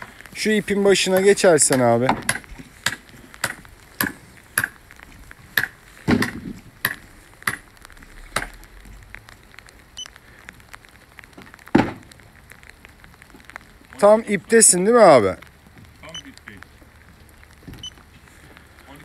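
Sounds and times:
footsteps on wet concrete: 0.0 - 19.0
loud thump: 6.0 - 7.6, 11.7 - 12.0.

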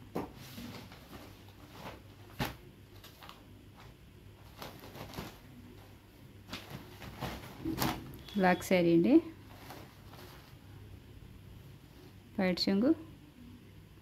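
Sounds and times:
faint low hum: 0.0 - 14.0
fabric rustling: 0.2 - 10.8
fabric slaps: 1.8 - 2.6, 6.5 - 8.1.

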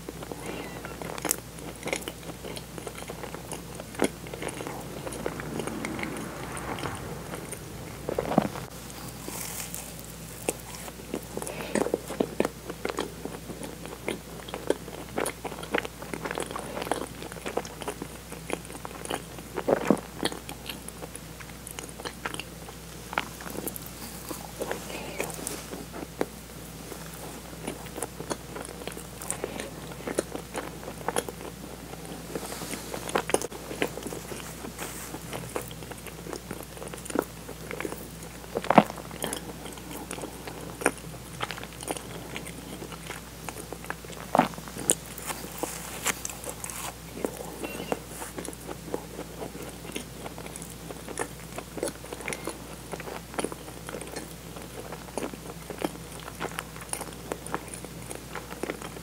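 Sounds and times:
chewing and lip smacks: 0.0 - 7.0, 10.4 - 23.8, 24.6 - 32.4, 33.0 - 59.0.

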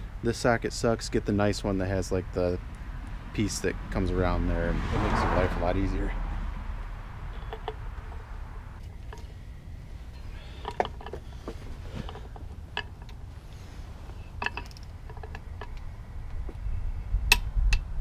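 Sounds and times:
torque wrench metallic clicks: 14.4 - 15.8.

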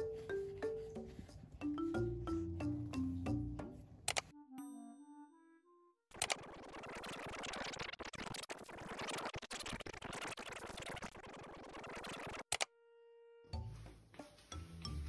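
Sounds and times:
scratchy rewind chattering: 6.1 - 12.5.

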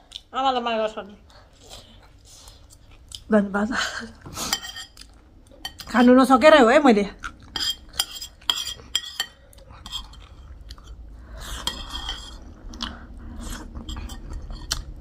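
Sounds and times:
chewing and sucking food: 1.2 - 3.3, 7.2 - 15.0
spoon scraping ceramic plate: 4.4 - 5.0, 7.5 - 10.4, 11.5 - 12.4.

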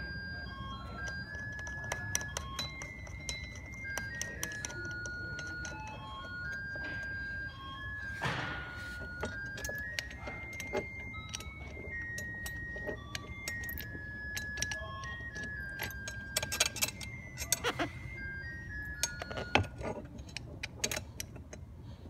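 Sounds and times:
metallic jingling and clinking: 0.0 - 22.0.

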